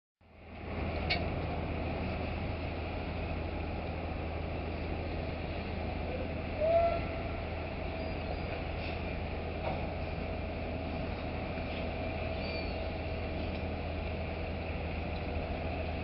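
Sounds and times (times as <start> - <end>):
crane machinery hum: 0.2 - 16.0
crane squeal: 7.8 - 8.9, 12.3 - 13.1.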